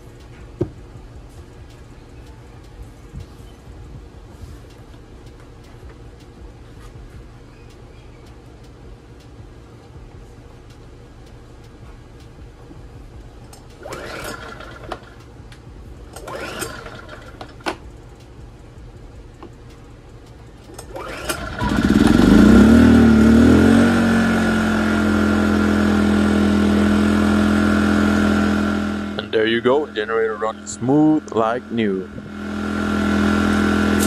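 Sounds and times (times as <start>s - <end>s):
generator engine running: 0.0s - 34.0s
recoil starter pulls: 13.5s - 18.3s, 19.3s - 26.2s, 26.8s - 34.0s.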